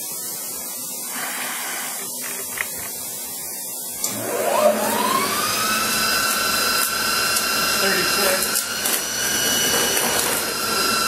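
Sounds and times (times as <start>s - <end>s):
milling machine humming: 0.0s - 11.0s
motor whine: 0.6s - 11.0s.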